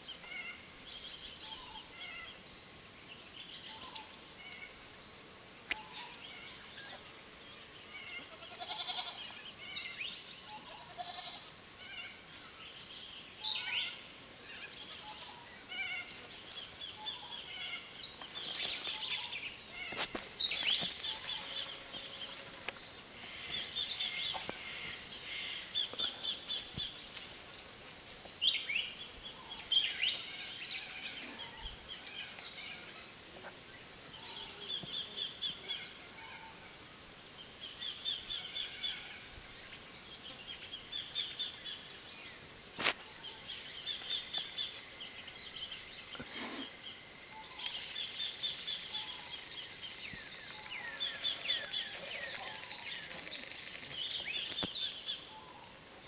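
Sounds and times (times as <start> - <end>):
birds chirping and trilling: 0.0 - 4.9, 5.7 - 27.4, 28.3 - 36.8, 37.4 - 56.0
goats bleating: 8.3 - 9.2, 10.9 - 11.4.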